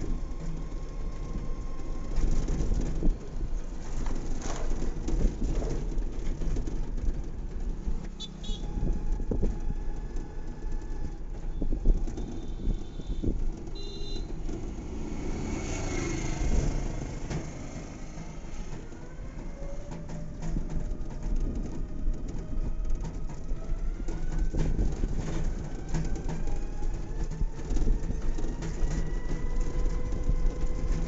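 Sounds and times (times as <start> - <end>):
wind and road rumble in vehicle: 0.0 - 31.0
vehicle body knocks and rattles: 2.2 - 8.0.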